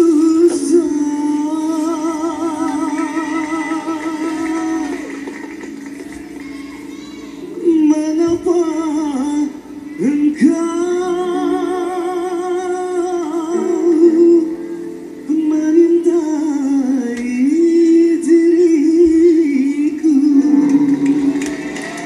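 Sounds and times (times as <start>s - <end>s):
man singing: 0.0s - 5.1s, 7.6s - 21.4s
live band playing: 20.1s - 22.0s.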